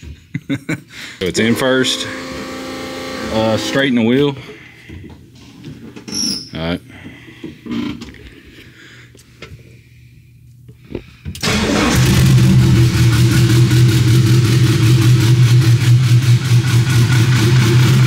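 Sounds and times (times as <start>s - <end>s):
car engine starting and idling: 11.4s - 18.0s.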